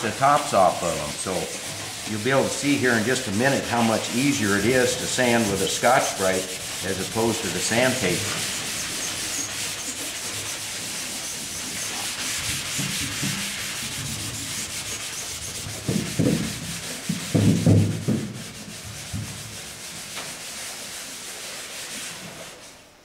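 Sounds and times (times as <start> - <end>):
scouring pad scuffing metal: 0.0 - 22.8
dull thumps: 15.6 - 19.6.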